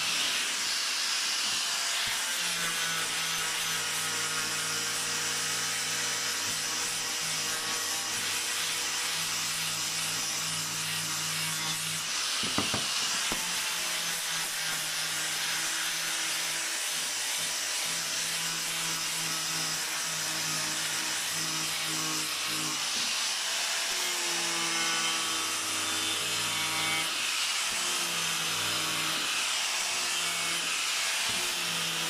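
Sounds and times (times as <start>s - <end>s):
angle grinder sanding wood: 0.0s - 25.2s
short knocks: 12.4s - 13.0s.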